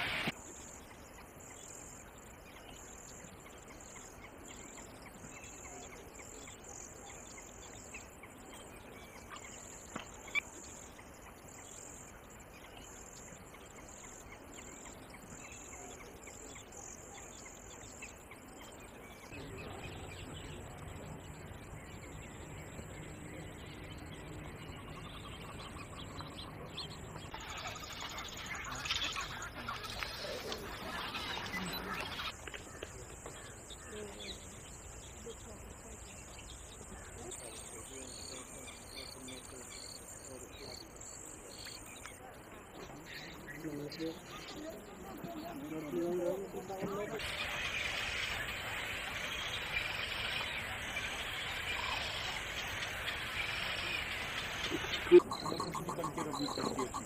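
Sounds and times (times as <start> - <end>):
pulsing high-pitched hiss: 0.0 - 0.8, 46.6 - 57.0
bird chirps: 0.0 - 57.0.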